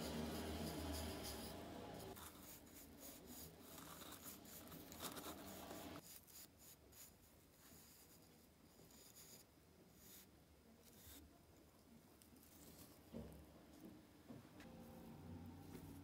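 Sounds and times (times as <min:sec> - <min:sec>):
brush swishing on wood: 0:00.0 - 0:06.0.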